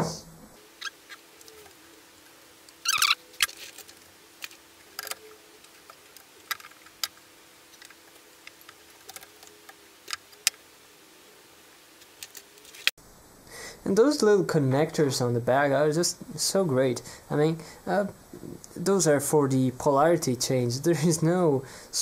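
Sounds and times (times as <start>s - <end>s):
faint hum: 0.0s - 22.0s.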